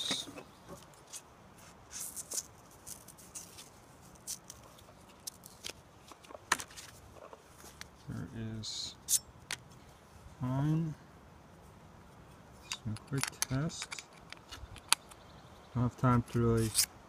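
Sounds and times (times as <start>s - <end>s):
whetstone and sleeve clicks and scrapes: 9.0s - 9.6s, 12.6s - 15.2s, 16.6s - 17.0s.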